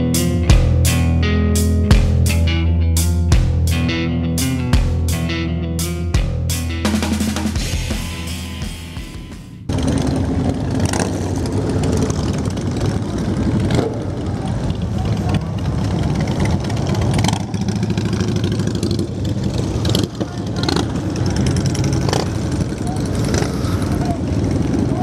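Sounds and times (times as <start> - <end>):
motorcycle engines rolling past: 9.6 - 25.0.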